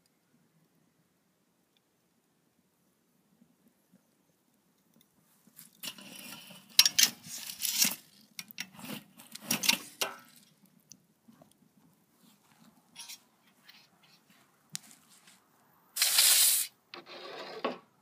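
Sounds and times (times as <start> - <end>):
hot coals crunching and crackling: 4.0 - 13.7
axe head scraping in embers: 5.6 - 10.6, 13.0 - 13.9, 16.0 - 17.8.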